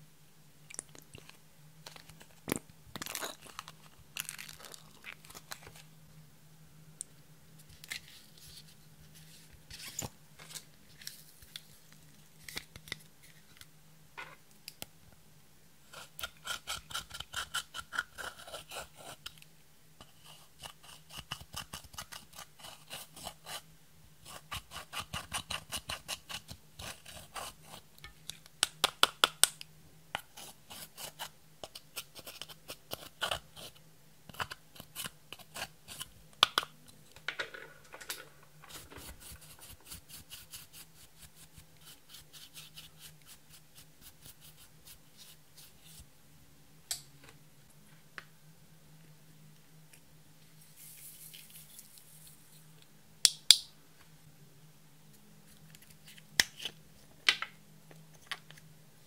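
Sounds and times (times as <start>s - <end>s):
eyeshadow scratching and crunching: 3.0s - 5.8s, 38.6s - 46.0s.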